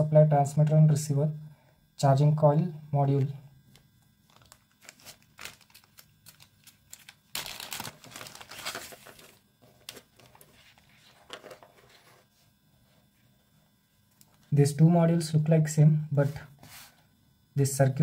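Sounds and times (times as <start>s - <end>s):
plastic bag crinkling: 4.2s - 12.0s.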